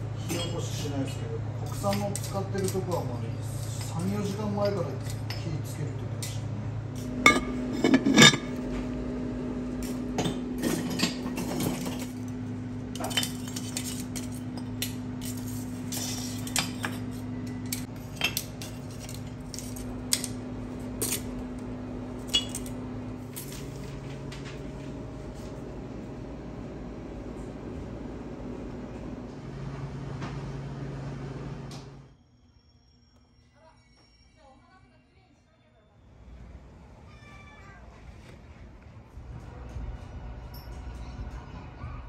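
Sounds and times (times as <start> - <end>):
steady low hum: 4.8 - 32.1, 38.1 - 42.0
dishes and utensils clinking: 7.0 - 8.7, 9.8 - 12.3, 12.9 - 20.3, 22.2 - 23.7.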